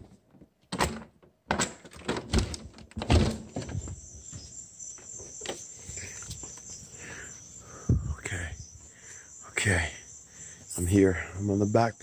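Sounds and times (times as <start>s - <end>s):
door thumps: 0.8s - 4.0s
crickets chirping: 3.2s - 12.0s.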